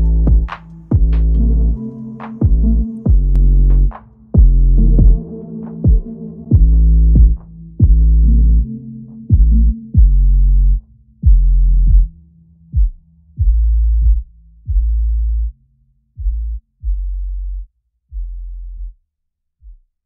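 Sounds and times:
electronic music with deep bass: 0.0 - 15.5
kick drum hits: 0.3 - 1.2, 2.4 - 3.4, 4.4 - 5.2, 5.9 - 8.0.

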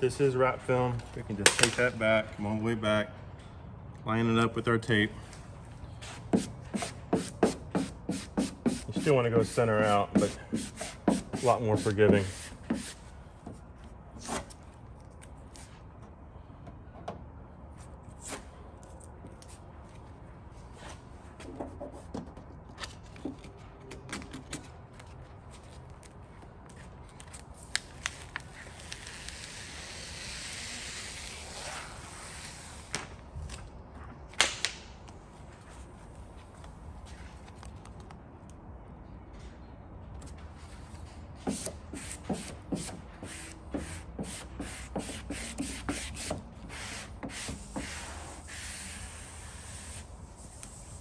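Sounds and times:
tape peeling hiss: 27.6 - 33.2, 41.5 - 51.0.

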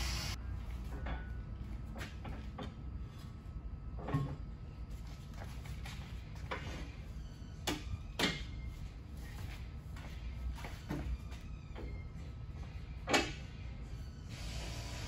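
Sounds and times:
metal clunks of tire machine: 4.0 - 4.4, 13.0 - 13.5.

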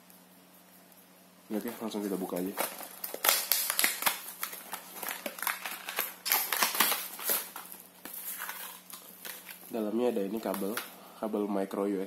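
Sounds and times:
cardboard and plastic clicks and rustles: 1.5 - 10.9.

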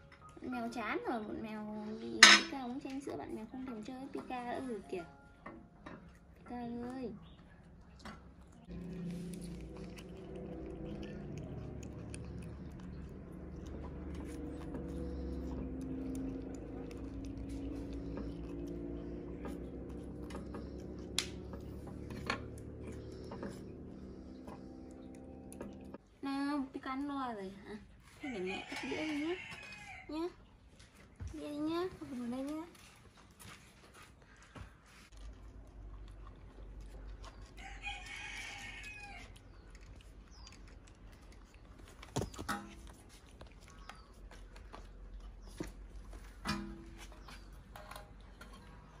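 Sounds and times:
steady low hum: 8.4 - 26.2.

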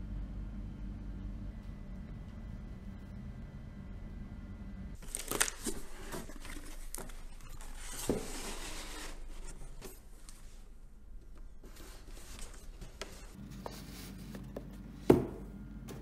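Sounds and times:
steady low hum: 0.0 - 5.1, 9.0 - 16.0
cardboard rustling and scraping: 5.0 - 10.6, 11.6 - 14.7.

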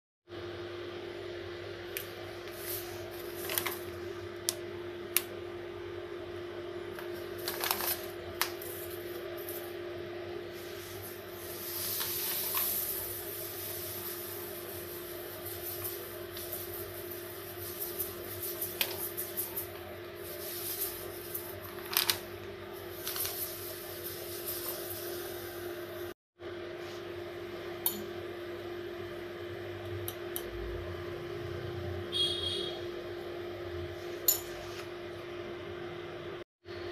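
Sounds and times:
steady low hum: 0.3 - 36.9
plastic packet crinkling: 7.4 - 8.1
grains pouring into bowl: 11.0 - 22.2, 22.9 - 25.4.

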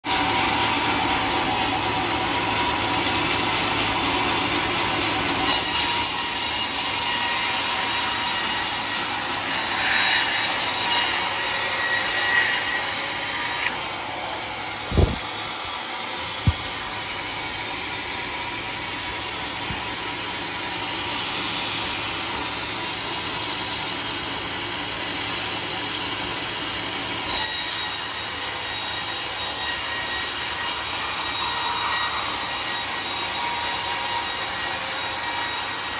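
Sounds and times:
band saw cutting log: 0.1 - 35.9
sharp knocks: 16.4 - 16.8.

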